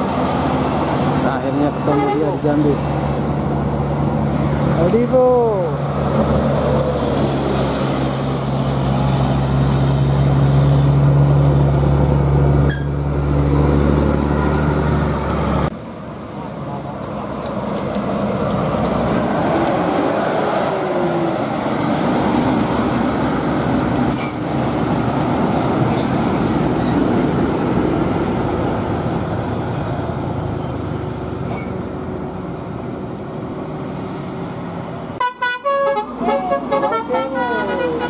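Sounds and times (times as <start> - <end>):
bus diesel engine passing: 0.0 - 38.0
musical bus horn: 1.9 - 2.3, 35.2 - 38.0.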